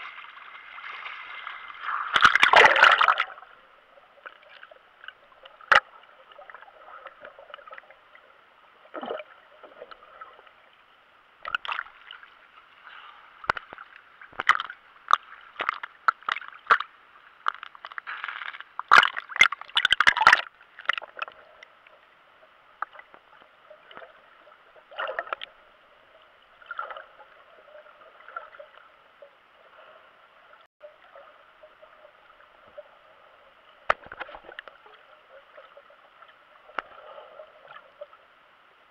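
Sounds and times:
splashing and bubbling: 0:00.0 - 0:10.4, 0:11.4 - 0:12.4, 0:13.0 - 0:21.9, 0:22.8 - 0:38.2
muffled underwater hiss: 0:03.0 - 0:16.0, 0:20.6 - 0:38.9
water clicks and knocks: 0:33.9 - 0:34.7.

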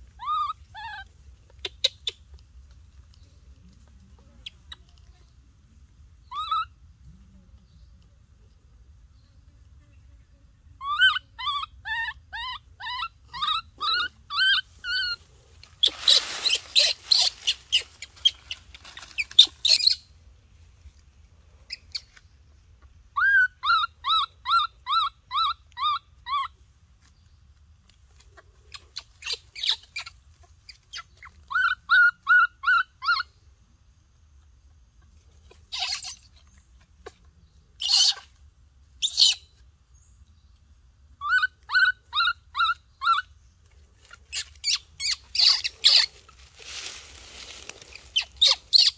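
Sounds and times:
baby monkey crying: 0:00.0 - 0:02.2, 0:06.3 - 0:06.8, 0:10.8 - 0:15.2, 0:15.8 - 0:20.0, 0:23.2 - 0:26.6, 0:28.7 - 0:33.3, 0:35.5 - 0:36.3, 0:37.8 - 0:38.4, 0:39.0 - 0:39.6, 0:41.2 - 0:43.3, 0:44.3 - 0:46.2, 0:47.9 - 0:48.9.

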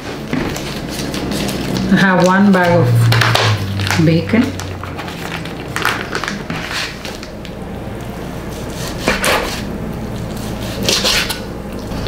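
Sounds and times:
plastic packet rustling: 0:00.1 - 0:02.5, 0:03.1 - 0:07.6.

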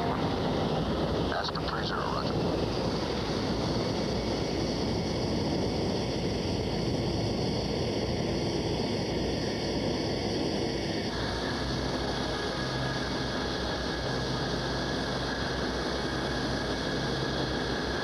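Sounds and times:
vehicle rumble and hiss: 0:00.0 - 0:18.0.

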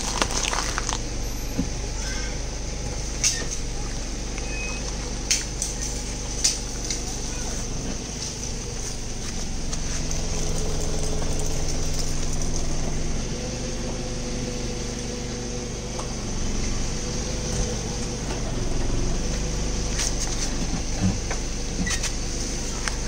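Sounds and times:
car engine idling: 0:00.0 - 0:23.0.

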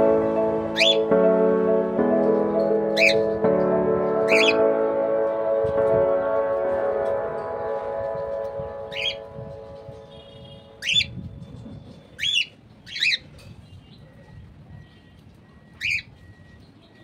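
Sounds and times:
cockatiels chirping: 0:15.8 - 0:16.1.

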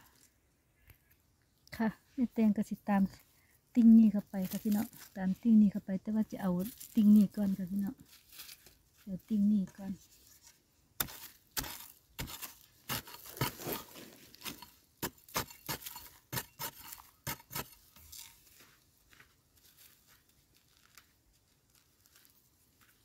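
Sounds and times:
metal tool scraping stony soil: 0:06.3 - 0:18.7.

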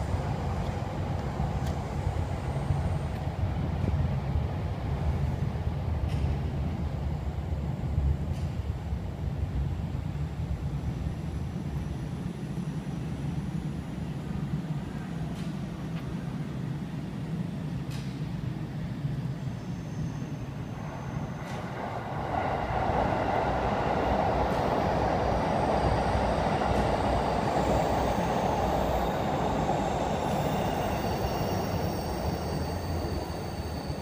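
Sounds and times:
faint high whines: 0:19.3 - 0:34.0.

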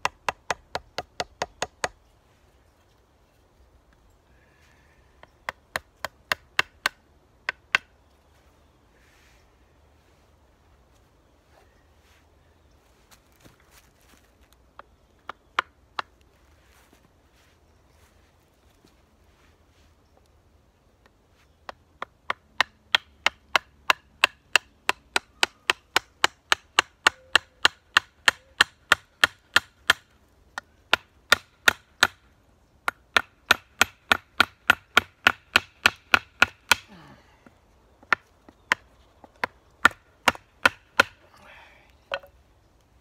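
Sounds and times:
wooden baton knocking on hatchet: 0:32.8 - 0:36.8, 0:38.0 - 0:41.2, 0:42.1 - 0:42.3.

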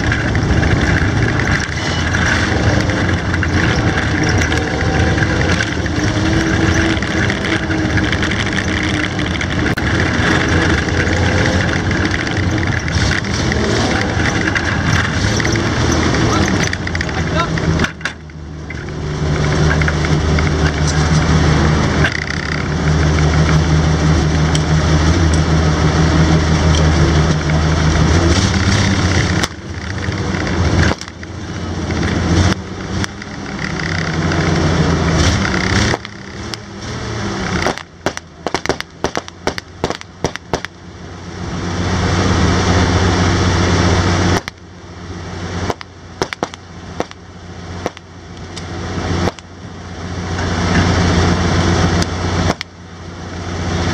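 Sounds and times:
sharp crackling clicks: 0:00.0 - 0:21.3, 0:22.0 - 0:23.6, 0:26.6 - 0:34.6, 0:35.2 - 0:36.8, 0:37.4 - 0:40.8, 0:44.3 - 0:44.6, 0:45.7 - 0:47.2, 0:47.8 - 0:49.5, 0:51.8 - 0:52.8
tracked vehicle engine running: 0:00.0 - 0:53.9.

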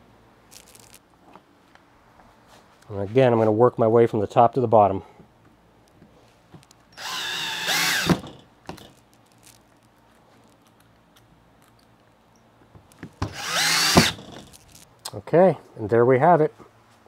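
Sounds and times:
cordless drill whining: 0:07.0 - 0:08.9, 0:13.2 - 0:14.7.

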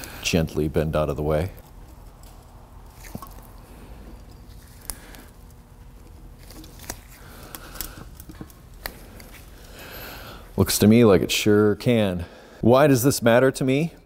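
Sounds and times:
hoses and metal parts clicking: 0:01.1 - 0:10.1.

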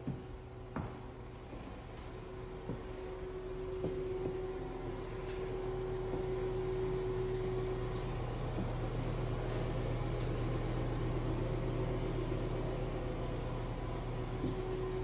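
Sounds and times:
exhaust fan humming: 0:00.0 - 0:15.0.

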